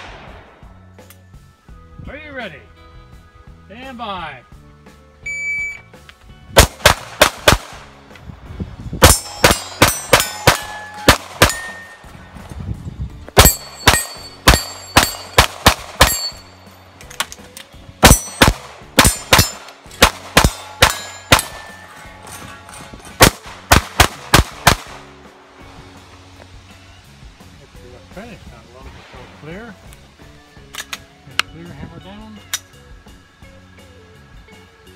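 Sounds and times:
shot timer beep: 5.2s - 5.9s
pistol firing rapid shots: 6.6s - 7.9s, 9.0s - 11.7s, 13.4s - 16.2s, 18.0s - 21.6s, 23.2s - 25.0s
bullets ringing on steel targets: 9.0s - 12.1s, 13.4s - 16.9s, 18.0s - 24.8s.

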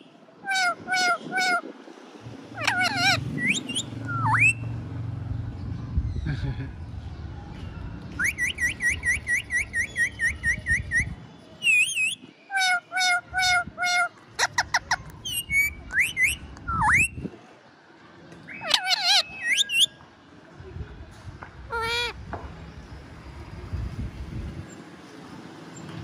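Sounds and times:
parrot whistling and calling: 2.6s - 4.7s, 8.2s - 17.2s, 18.5s - 20.0s.

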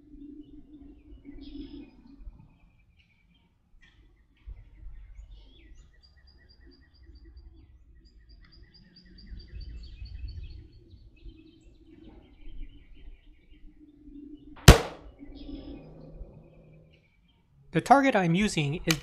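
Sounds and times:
wind rumble on microphone: 9.1s - 13.3s.

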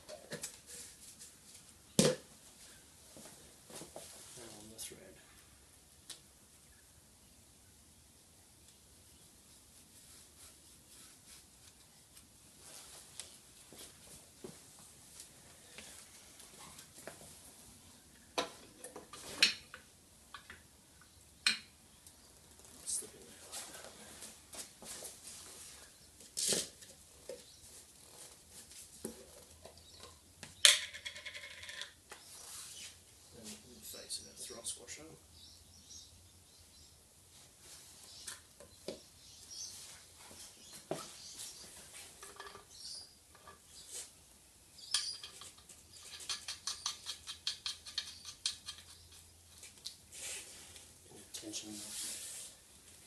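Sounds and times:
birds chirping faintly: 3.8s - 13.5s, 17.6s - 26.3s, 27.0s - 30.7s, 32.0s - 50.0s
knocks and clicks on concrete floor: 30.0s - 32.2s
metal clinks and knocks: 30.7s - 32.0s, 44.9s - 49.3s.

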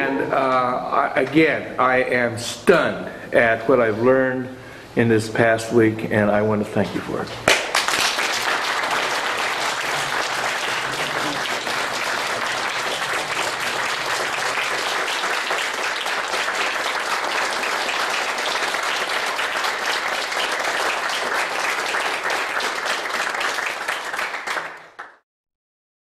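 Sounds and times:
audience applauding: 7.5s - 25.2s.

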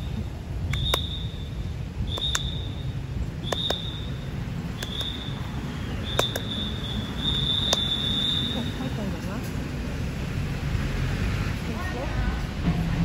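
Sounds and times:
whistle short high blasts: 0.7s - 8.8s
sharp handclaps: 2.1s - 2.6s, 3.5s - 3.9s, 6.1s - 6.5s.

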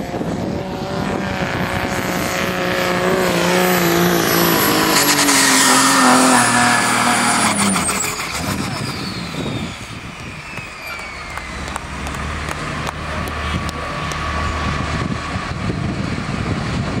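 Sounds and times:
turbo whine falling in pitch: 5.7s - 12.7s
turbo whistle: 7.2s - 11.8s
diesel engine idling: 7.5s - 17.0s.

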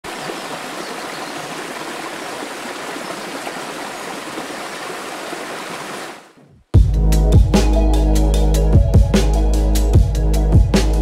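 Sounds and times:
waterfall rushing water: 0.0s - 6.4s.

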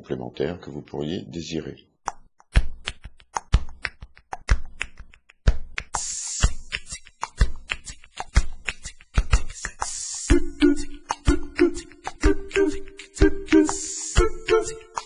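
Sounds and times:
music with dry percussive beat: 2.1s - 15.0s
hissing swell: 12.7s - 15.0s.

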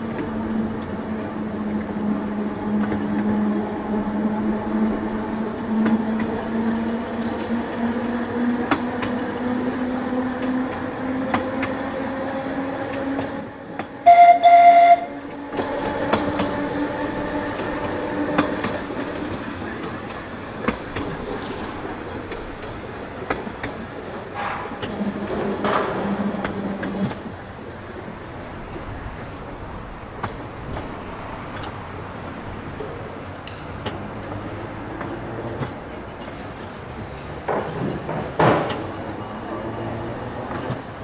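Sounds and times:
tram motor whine: 0.0s - 32.6s
tram horn: 14.0s - 15.4s
wheels clicking over rail joints: 15.2s - 41.0s.

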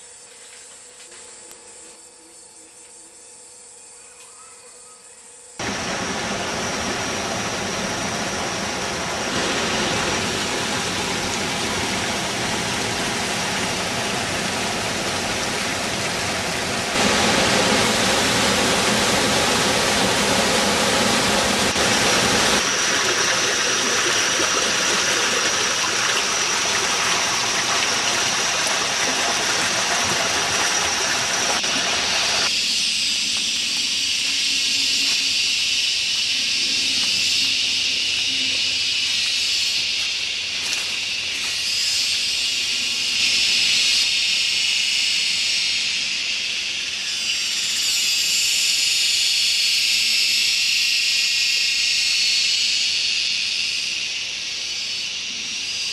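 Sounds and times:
water rushing: 5.6s - 32.5s.

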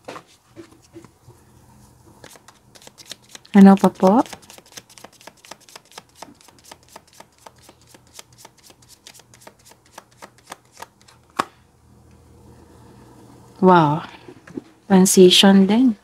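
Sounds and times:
cards being shuffled: 2.2s - 11.5s
card snap: 4.2s - 11.6s.

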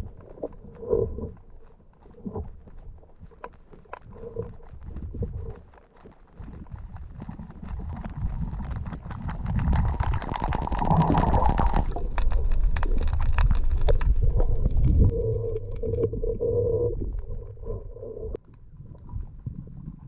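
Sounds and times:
underwater rumble: 0.0s - 20.0s
steady low hum: 14.3s - 18.4s.

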